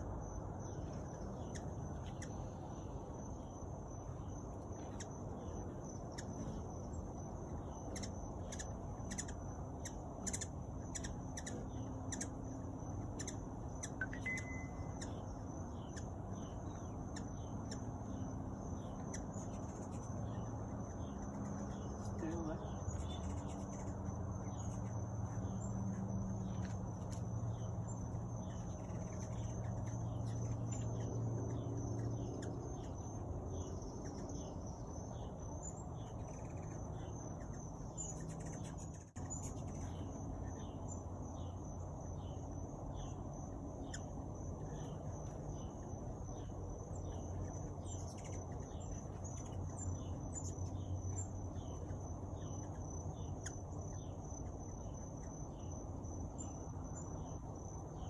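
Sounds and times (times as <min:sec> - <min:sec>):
insect chirps: 0:00.0 - 0:58.0
insects droning: 0:00.0 - 0:58.0
low steady hum: 0:00.0 - 0:58.0.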